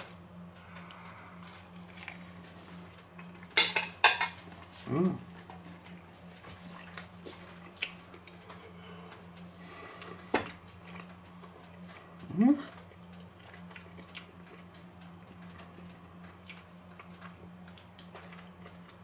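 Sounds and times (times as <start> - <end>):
cutlery clinking on a plate: 3.6 - 4.4
brief hum of voice: 4.8 - 5.3, 12.2 - 12.8.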